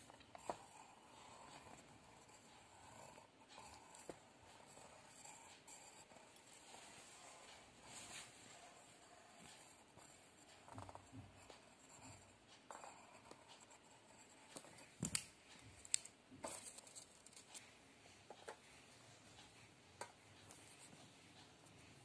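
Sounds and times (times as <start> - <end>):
pencil scratching on paper: 0.0 - 14.9.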